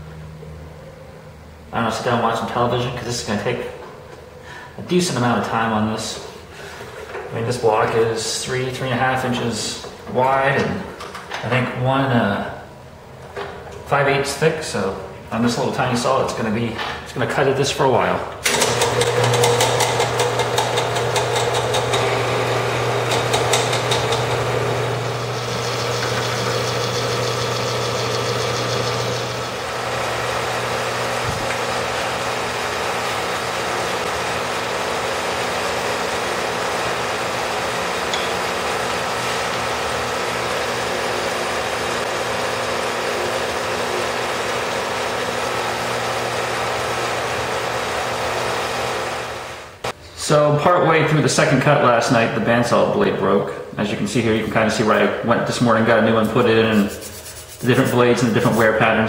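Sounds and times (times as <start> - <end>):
bandsaw cutting metal: 18.5 - 32.6.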